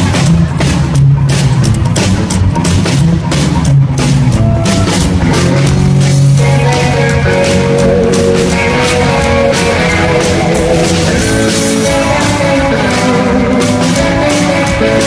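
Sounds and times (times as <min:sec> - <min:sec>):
drum kit: 0:00.0 - 0:15.0
electric guitar: 0:00.0 - 0:15.0
upright double bass: 0:00.0 - 0:15.0.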